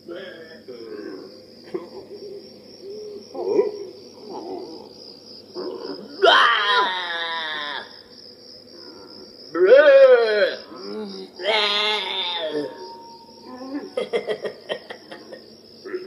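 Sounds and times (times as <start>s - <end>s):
high pulsing chirr: 0.0s - 6.2s, 10.4s - 16.0s.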